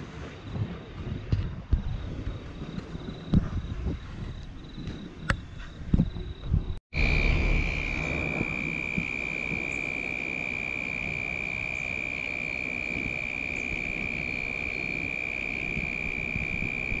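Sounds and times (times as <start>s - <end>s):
low background rumble: 6.5s - 17.0s
insect trilling: 7.0s - 17.0s.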